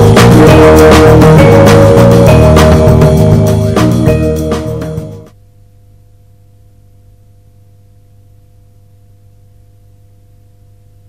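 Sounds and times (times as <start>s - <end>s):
closing music: 0.0s - 5.4s.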